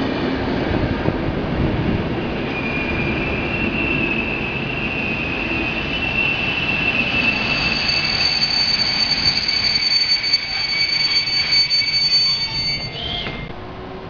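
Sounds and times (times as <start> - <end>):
train coaches rumbling: 0.0 - 14.0
high-pitched wheel squeal: 2.3 - 13.5.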